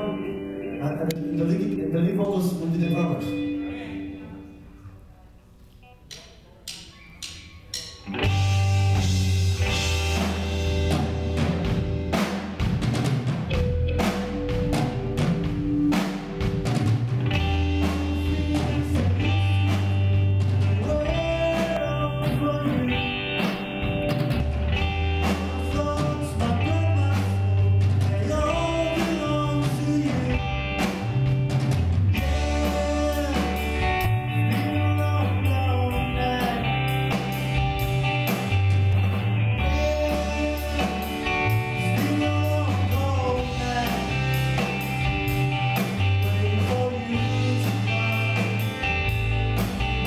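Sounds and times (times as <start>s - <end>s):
live rock band playing: 0.0s - 4.8s, 5.8s - 50.0s
person singing lead vocals: 0.0s - 4.8s, 17.6s - 31.2s, 32.2s - 37.8s, 39.5s - 49.4s.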